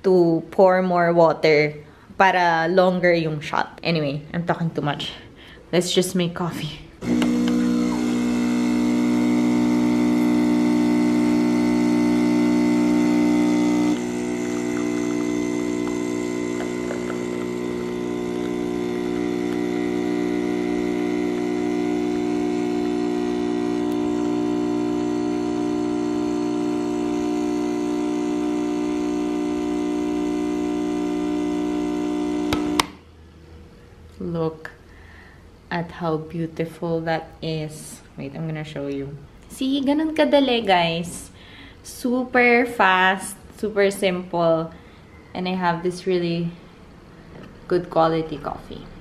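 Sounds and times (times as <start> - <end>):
espresso machine pump humming: 7.0 - 32.9.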